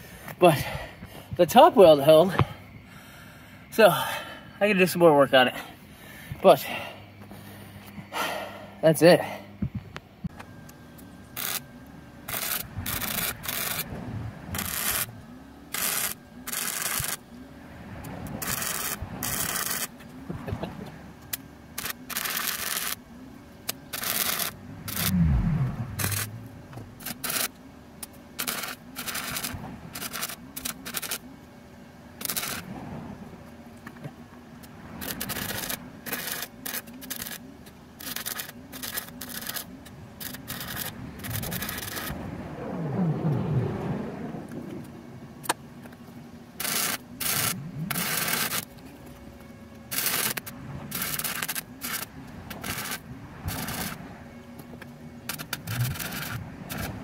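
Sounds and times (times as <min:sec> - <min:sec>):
welder arc crackling on steel: 0:11.3 - 0:17.4, 0:18.0 - 0:31.3, 0:32.2 - 0:32.7, 0:34.6 - 0:42.9, 0:46.5 - 0:49.0, 0:49.8 - 0:54.0, 0:54.6 - 0:57.0
low rumble: 0:12.7 - 0:15.3, 0:24.4 - 0:27.1, 0:40.7 - 0:45.5.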